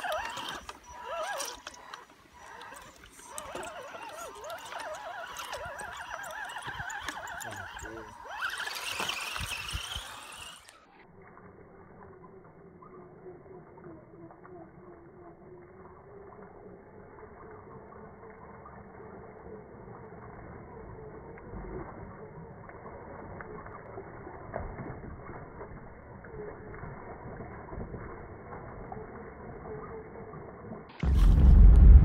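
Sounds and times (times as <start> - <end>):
electric motor whining: 0.0 - 10.8.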